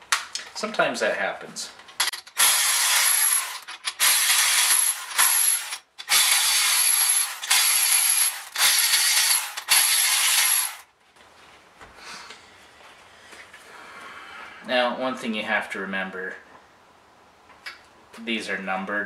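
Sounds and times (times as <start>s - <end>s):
electric ratchet running: 2.0s - 10.8s.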